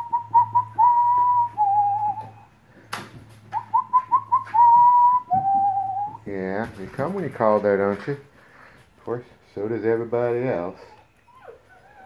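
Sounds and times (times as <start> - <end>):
person whistling: 0.0 - 2.5, 3.6 - 6.2.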